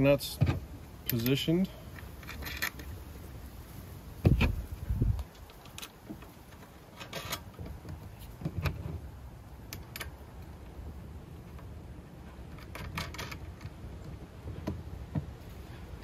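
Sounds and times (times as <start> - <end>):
metallic clicks of lock nuts: 0.4 - 3.0, 5.2 - 7.8, 9.6 - 10.6, 12.4 - 14.8
wind rumble on microphone: 2.8 - 6.2.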